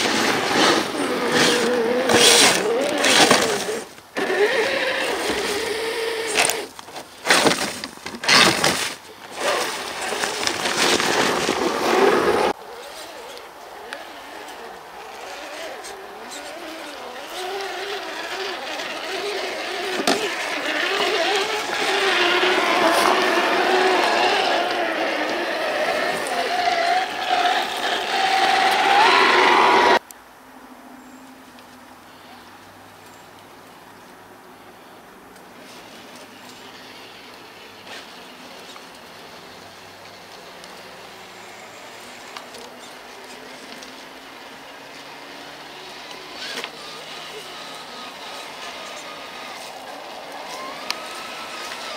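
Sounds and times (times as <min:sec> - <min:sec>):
loud crunch: 0:00.0 - 0:13.1, 0:13.9 - 0:30.0
rc truck electric motor whine: 0:00.0 - 0:30.0, 0:35.6 - 0:51.9
tyres clicking on rocks: 0:00.2 - 0:12.5, 0:15.0 - 0:29.2.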